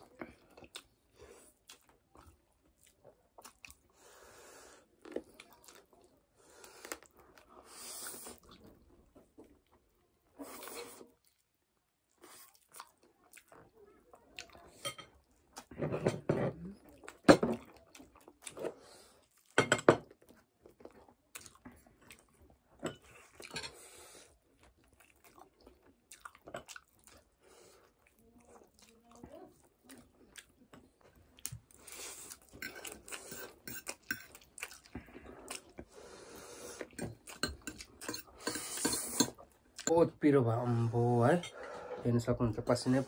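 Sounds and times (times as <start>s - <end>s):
chewing: 0.0s - 4.0s, 4.8s - 15.8s, 16.7s - 39.9s
cutlery clinking on plates: 19.6s - 20.1s.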